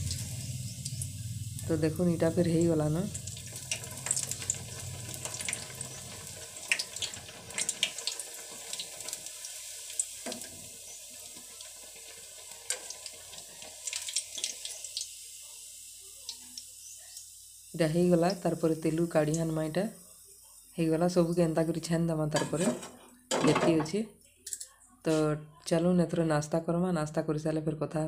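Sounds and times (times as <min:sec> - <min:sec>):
deep-frying sizzle with pops: 0:00.0 - 0:21.8.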